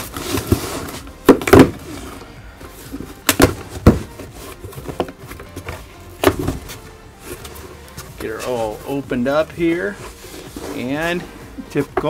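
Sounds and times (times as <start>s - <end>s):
cardboard flaps popping and ripping: 0.0s - 2.0s
cardboard rustling: 0.0s - 12.0s.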